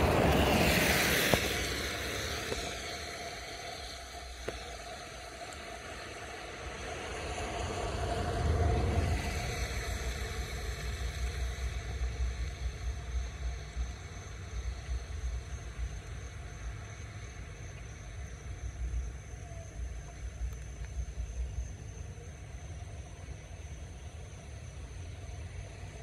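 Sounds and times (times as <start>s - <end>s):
road vehicle passing by: 0.0s - 14.0s
low rumble: 0.0s - 26.0s.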